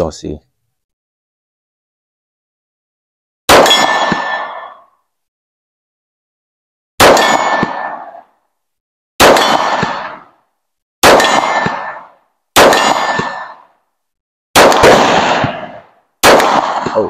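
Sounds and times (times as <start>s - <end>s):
handgun shots with metallic ring: 3.5s - 4.9s, 7.0s - 8.3s, 9.2s - 10.4s, 11.0s - 13.8s, 14.6s - 17.0s.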